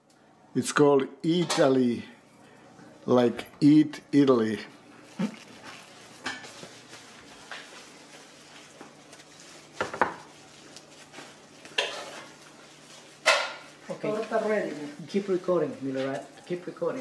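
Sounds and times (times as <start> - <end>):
plastic bag crinkling: 4.4 - 17.0.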